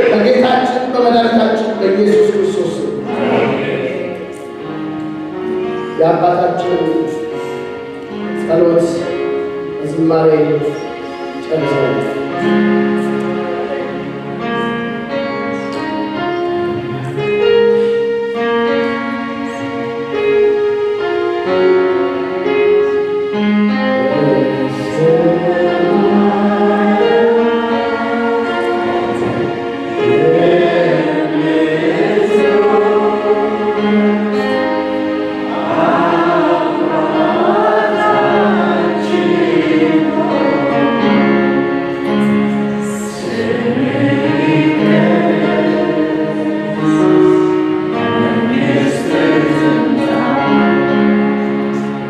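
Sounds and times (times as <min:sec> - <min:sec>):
held keyboard chords: 0:00.0 - 0:52.0
people singing worship song: 0:02.2 - 0:06.0, 0:23.9 - 0:52.0.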